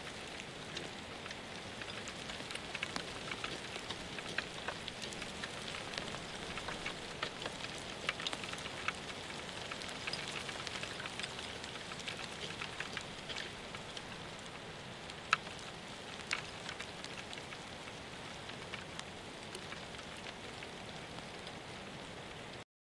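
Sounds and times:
rain hiss: 0.0 - 22.6
raindrops ticking close: 0.0 - 22.6.

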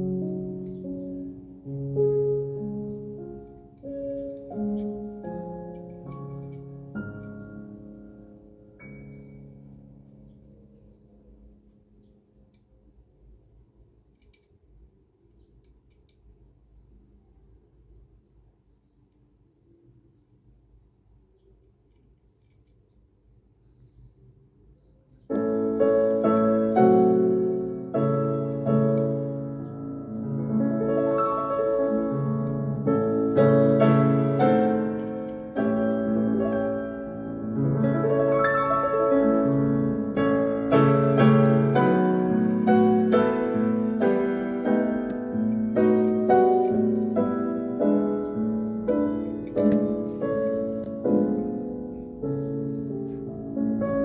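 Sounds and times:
piano playing loud chords: 0.0 - 11.0, 25.3 - 54.0.

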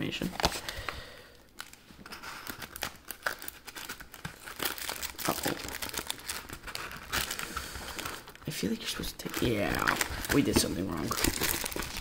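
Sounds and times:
packaging crinkling and tearing: 0.2 - 12.0.

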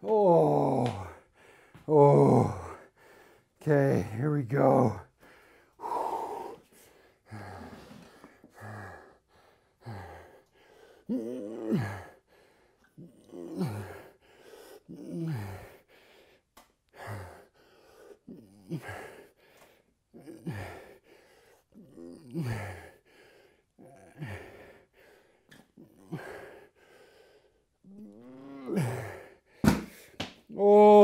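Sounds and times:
man breathing hard: 0.4 - 4.2, 5.0 - 27.9, 28.7 - 30.2
man groaning exhales: 5.8 - 6.6, 11.1 - 12.2, 27.9 - 29.3.

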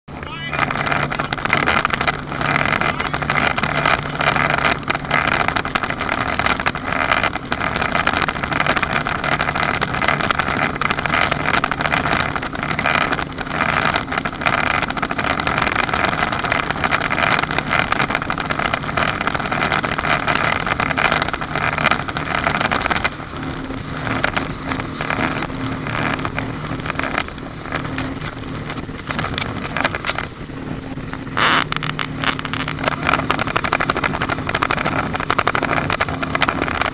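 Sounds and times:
speedboat engines running: 0.0 - 36.9
water rushing along hull: 0.1 - 36.9.

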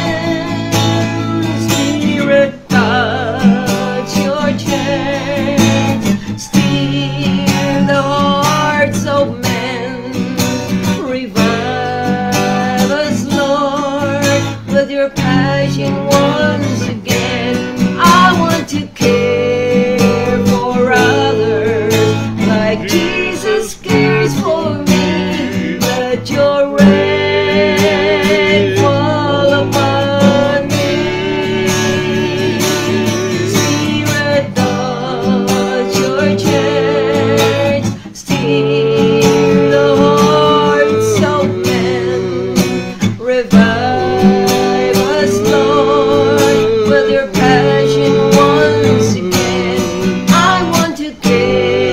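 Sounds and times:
acoustic guitar strumming: 0.0 - 51.9
woman singing: 0.0 - 51.9.

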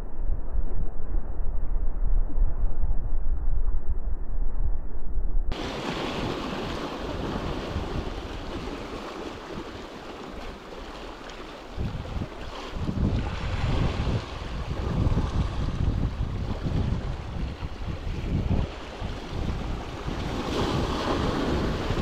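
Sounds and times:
wind buffeting microphone: 0.0 - 22.0
small waves washing over rocks: 5.5 - 22.0.

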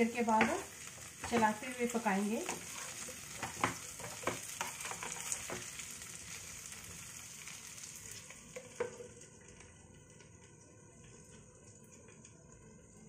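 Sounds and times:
potatoes sizzling in oil: 0.0 - 11.6
wooden spatula scraping and clicking: 2.4 - 5.7.

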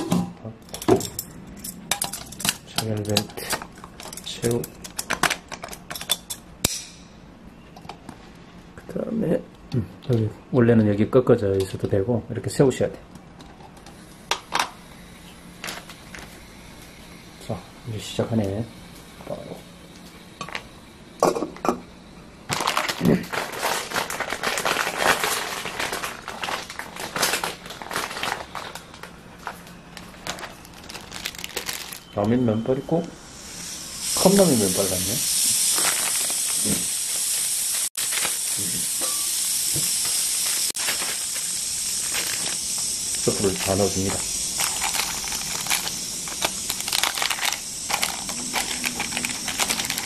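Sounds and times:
plastic sachets crinkling: 22.5 - 32.4, 35.6 - 37.2, 40.4 - 50.0
heating pack sizzling crackle: 22.5 - 50.0.

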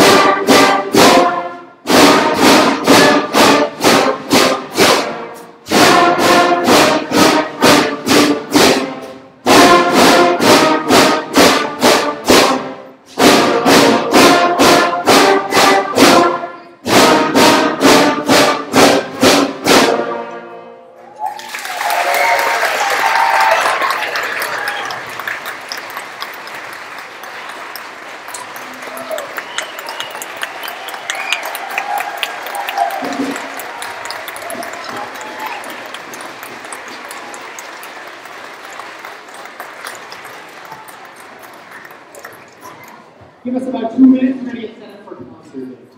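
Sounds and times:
concert band playing: 0.0 - 42.7
audience applause: 21.0 - 43.2.

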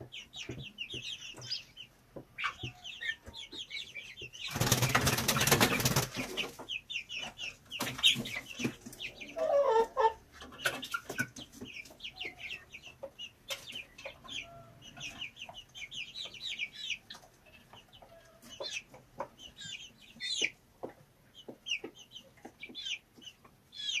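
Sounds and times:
chicks peeping: 0.0 - 24.0
hen clucking: 0.0 - 24.0.

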